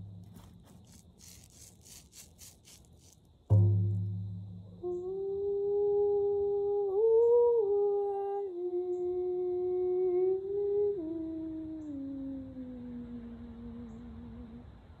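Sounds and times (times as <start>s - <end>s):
woman humming: 4.8s - 14.8s.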